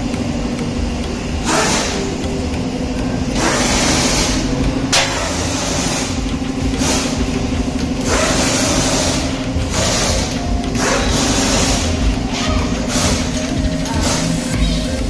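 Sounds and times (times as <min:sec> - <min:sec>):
low mechanical hum: 0:00.0 - 0:15.0
sharp click: 0:00.0 - 0:15.0
hiss: 0:01.4 - 0:02.2, 0:03.4 - 0:14.6.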